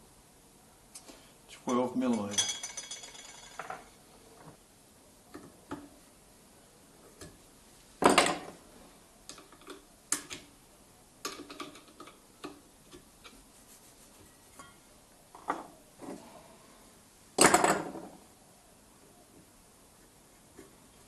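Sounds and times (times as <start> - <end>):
metal clatter: 2.1 - 3.9.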